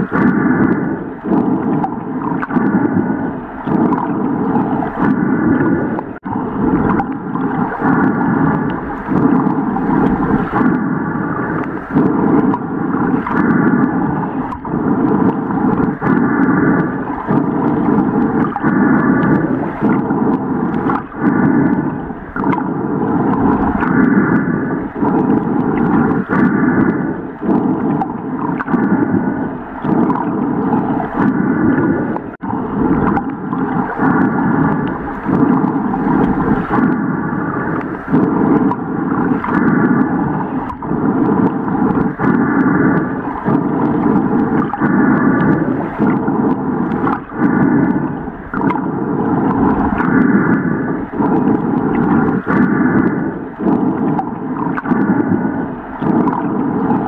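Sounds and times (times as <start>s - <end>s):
gurgling rush of water: 0.0s - 57.0s.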